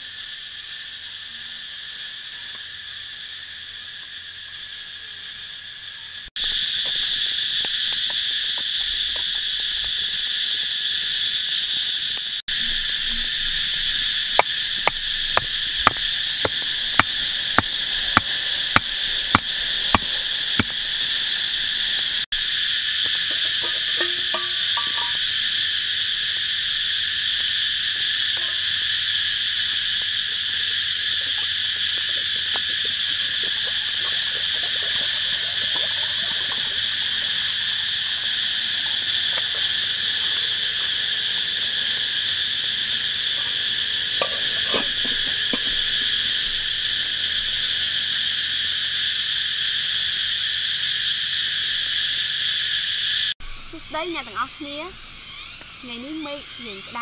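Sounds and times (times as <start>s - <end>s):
insects droning: 0.0s - 57.0s
metal pot and firewood knocks: 14.4s - 21.1s, 23.1s - 25.2s, 44.2s - 45.9s.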